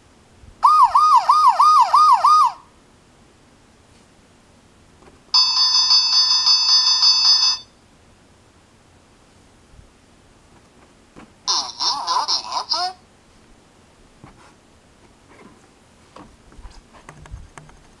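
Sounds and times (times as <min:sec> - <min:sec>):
electronic fire-engine siren: 0:00.6 - 0:02.6
electronic fire bell ringing: 0:05.4 - 0:07.7.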